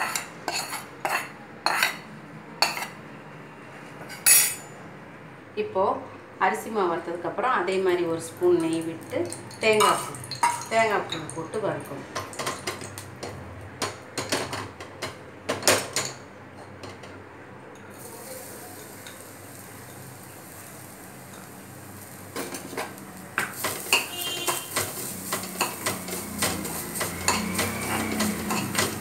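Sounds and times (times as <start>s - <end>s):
spoon clinking and scraping pan: 0.0s - 2.0s, 2.6s - 3.0s, 9.3s - 11.3s, 18.9s - 29.0s
faint steady hiss: 17.8s - 25.8s.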